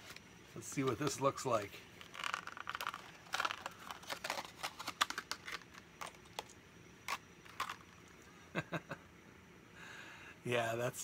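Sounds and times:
plastic packaging crackling: 2.0 - 8.1.

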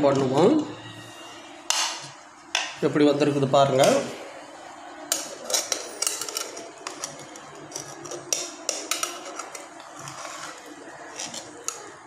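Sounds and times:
metal ladle scraping rice: 5.4 - 11.8.

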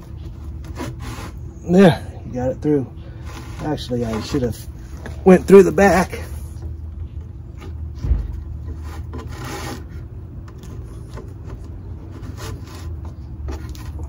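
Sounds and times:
rope rasping against wood: 0.3 - 1.8, 3.1 - 4.7, 8.6 - 14.0
thump: 8.0 - 8.4.

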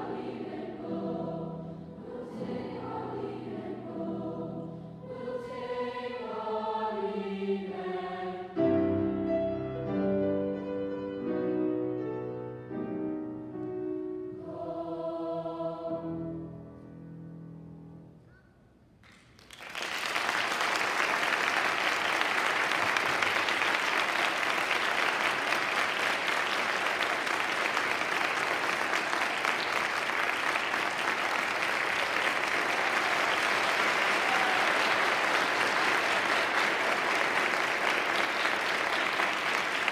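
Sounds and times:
audience applause: 19.1 - 39.9.

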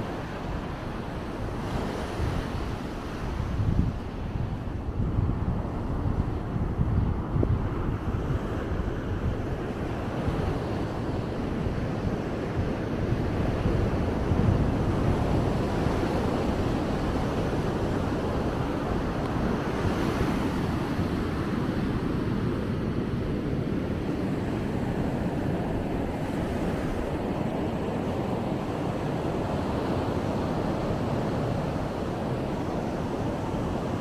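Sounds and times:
ocean surf breaking: 8.6 - 34.0.

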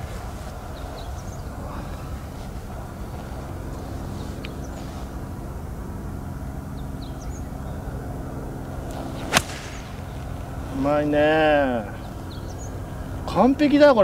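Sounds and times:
low engine drone: 0.0 - 14.0
bird chirps: 6.7 - 8.0, 11.9 - 13.0
golf club striking ball: 8.8 - 10.6.

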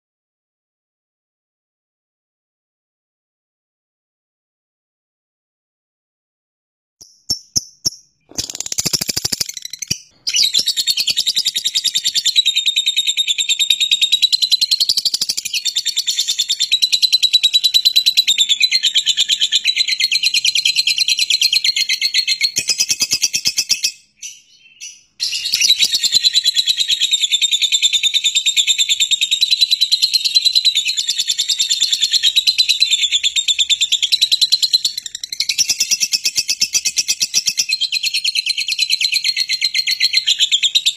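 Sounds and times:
lovebird chattering trill: 7.1 - 21.2, 21.8 - 27.2.

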